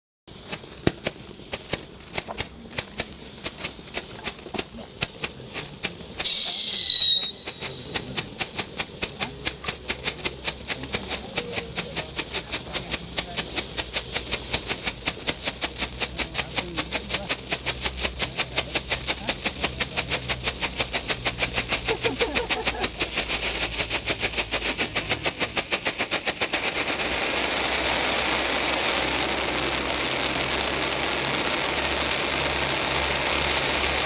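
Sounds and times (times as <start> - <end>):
firework fountain crackling pops: 0.3 - 34.0
firework whistle: 5.7 - 10.6, 18.8 - 34.0.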